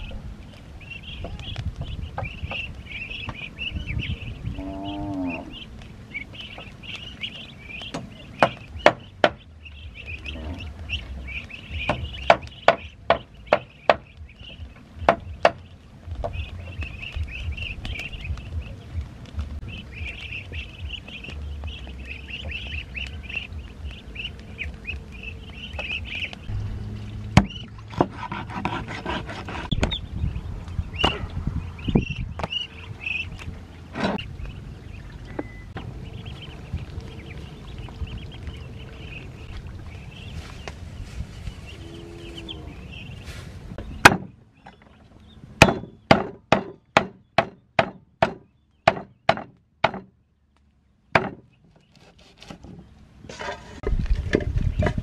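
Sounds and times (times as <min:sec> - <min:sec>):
ducklings peeping: 0:00.0 - 0:53.2
sharp knocks: 0:44.0 - 0:44.3, 0:45.6 - 0:50.1, 0:51.2 - 0:51.5.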